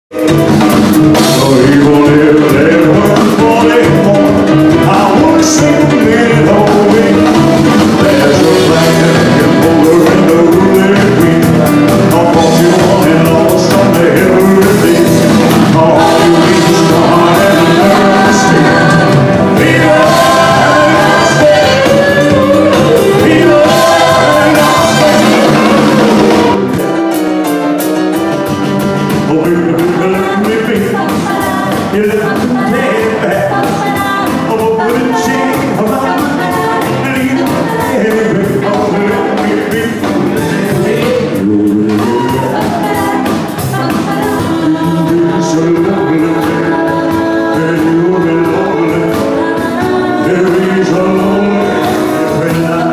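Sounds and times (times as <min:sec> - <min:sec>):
band music with singing: 0:00.1 - 0:52.9.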